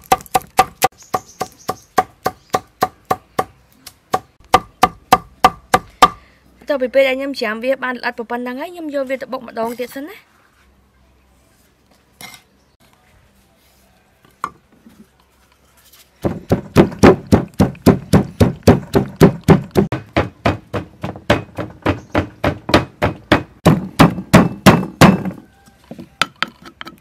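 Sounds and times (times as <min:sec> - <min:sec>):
pestle pounding in wooden mortar: 0:00.0 - 0:03.5, 0:04.1 - 0:06.2, 0:16.2 - 0:25.4.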